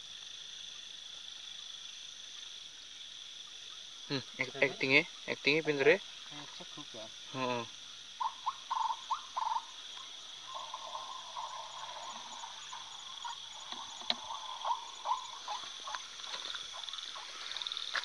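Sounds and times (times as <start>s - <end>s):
high insect trill: 0.0s - 18.0s
animal calls: 8.2s - 17.9s.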